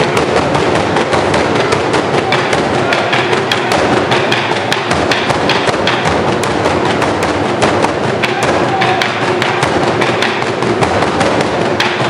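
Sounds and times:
drum ensemble pounding: 0.0 - 12.0.

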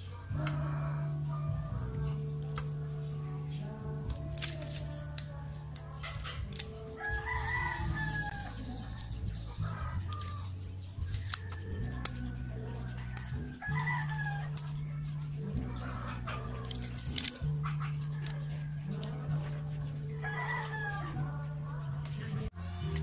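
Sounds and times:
rooster crowing: 0.0 - 2.2, 4.6 - 23.0
soft background music: 0.0 - 23.0
paper rustling and clicks: 4.1 - 9.1, 10.0 - 12.3, 16.5 - 19.5.

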